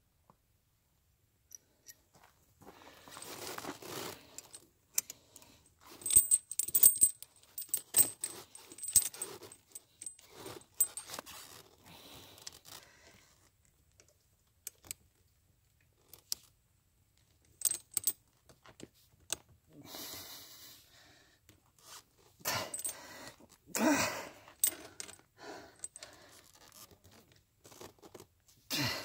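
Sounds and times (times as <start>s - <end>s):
tire chain links clinking: 5.9s - 11.1s, 17.5s - 18.1s, 22.6s - 23.0s, 24.6s - 25.2s.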